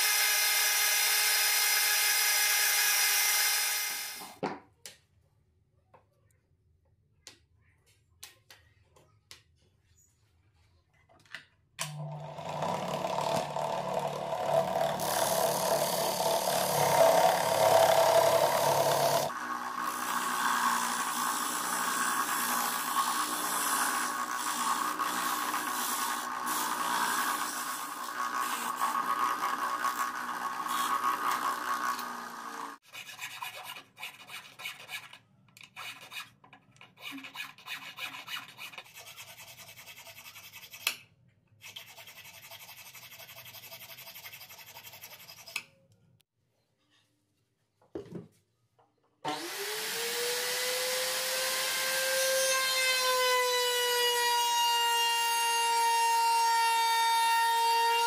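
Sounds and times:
power tool motor whine: 11.9s - 22.0s, 28.7s - 32.8s, 49.3s - 56.8s
disc sander grinding metal: 12.0s - 32.8s.

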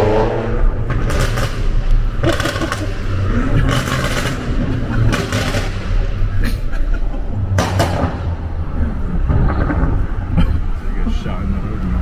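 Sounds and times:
car engine rumbling low: 0.0s - 12.0s
exhaust crackles and pops: 0.8s - 5.9s, 9.2s - 10.5s.

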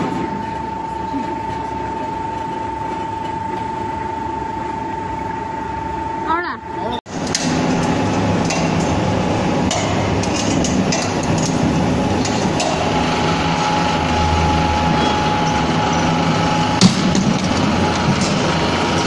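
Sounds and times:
machine drive humming: 0.0s - 19.0s
rollers knocking and clattering: 7.2s - 14.0s, 14.9s - 19.0s.

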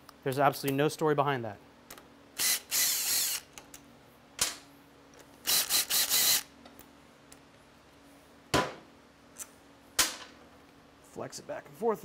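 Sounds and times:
power tool trigger bursts: 2.4s - 3.5s, 5.4s - 6.5s.

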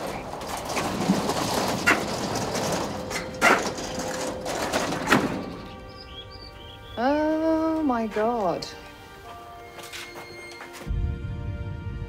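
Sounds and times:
metal roller shutter rattling: 0.0s - 6.1s
soft music: 5.4s - 12.0s.

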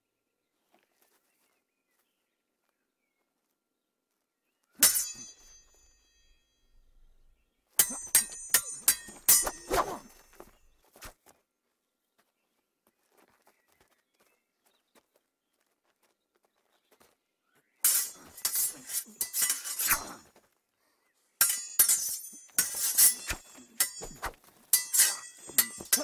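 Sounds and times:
sword blades clashing: 4.8s - 6.3s, 7.8s - 10.6s, 17.8s - 20.3s, 21.4s - 26.0s.

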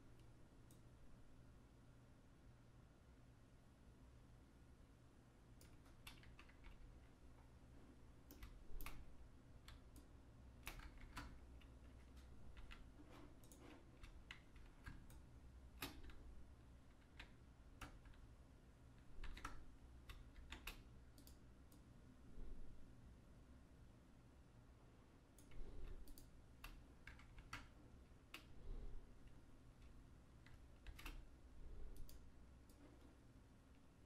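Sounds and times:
low steady hum: 0.0s - 34.0s
keyboard and mouse clicking: 5.6s - 7.1s, 8.2s - 16.3s, 16.9s - 18.3s, 19.0s - 21.9s, 25.4s - 28.6s, 29.2s - 33.1s.

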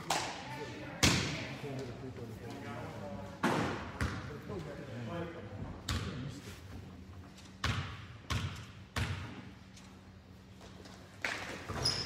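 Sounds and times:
basketball bouncing on gym floor: 4.0s - 4.3s, 5.8s - 6.2s, 7.6s - 9.6s
sneaker squeaks: 11.5s - 12.0s.

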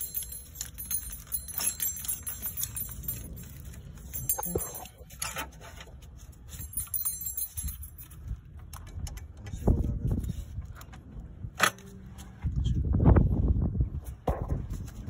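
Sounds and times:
steady low rumble: 0.0s - 5.2s
light clicks and metallic clinks: 0.0s - 9.6s.

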